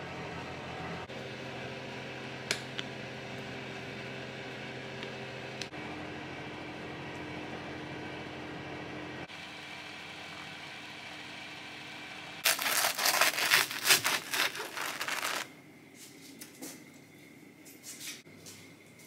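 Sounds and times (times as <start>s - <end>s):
knife crunching through toasted sandwich: 12.4s - 15.5s.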